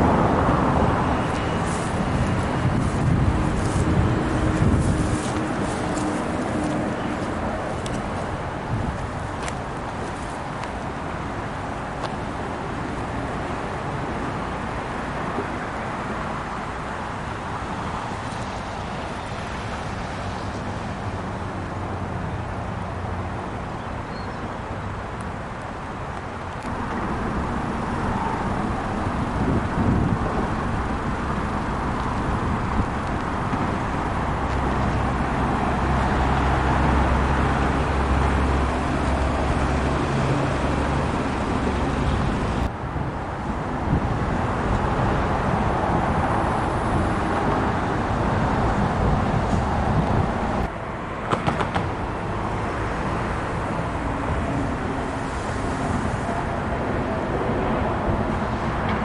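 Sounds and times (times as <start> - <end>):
street traffic: 0.0 - 59.0
low engine drone: 26.7 - 59.0.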